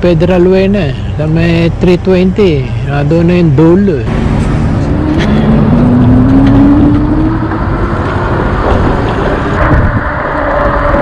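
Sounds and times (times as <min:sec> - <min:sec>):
wind noise on microphone: 0:04.1 - 0:11.0.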